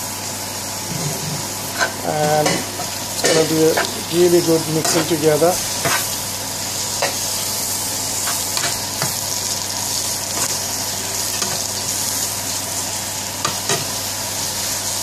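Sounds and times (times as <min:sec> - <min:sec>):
food sizzling in oil: 0:00.0 - 0:15.0
metal spoon scraping a pan: 0:00.9 - 0:04.0, 0:04.8 - 0:05.2, 0:05.8 - 0:06.2, 0:08.2 - 0:09.1.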